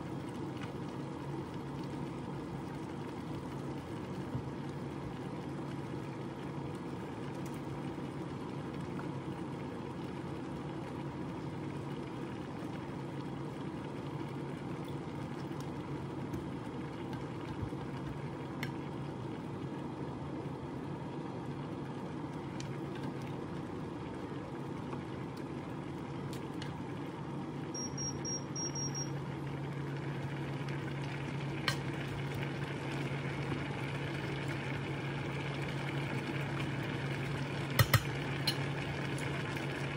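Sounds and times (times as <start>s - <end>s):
short high beeps: 27.8s - 29.2s
food sizzling in a frying pan: 29.6s - 39.9s.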